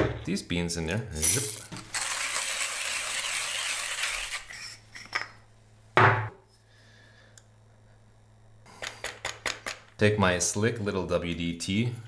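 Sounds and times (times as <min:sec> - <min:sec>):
hand coffee grinder crunching beans: 0:01.2 - 0:04.8.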